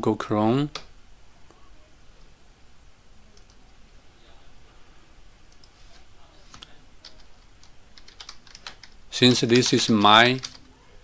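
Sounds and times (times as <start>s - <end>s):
computer mouse clicks: 3.3s - 3.6s, 5.5s - 5.8s.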